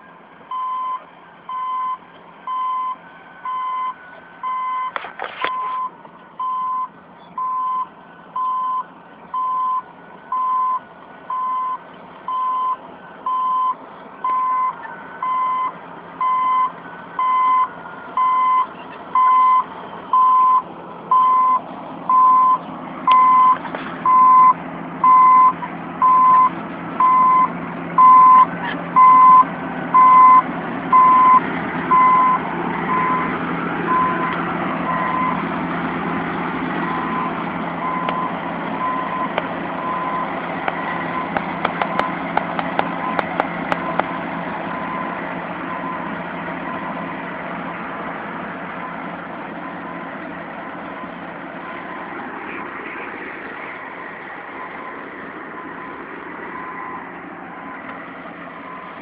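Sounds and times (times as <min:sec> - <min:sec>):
bulldozer track noise: 0:00.0 - 0:59.0
diesel engine running: 0:00.0 - 0:59.0
backup alarm beeping: 0:00.5 - 0:33.3.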